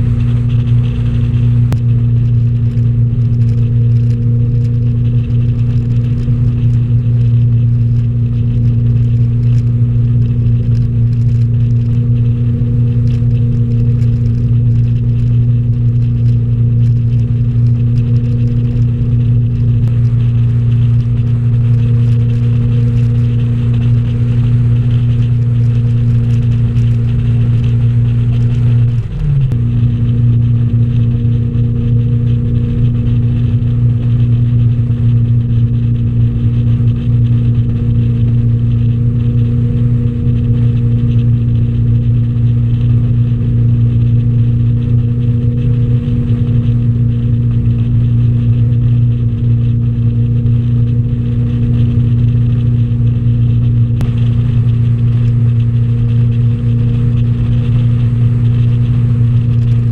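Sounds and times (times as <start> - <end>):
boat engine humming: 0.0 - 59.9.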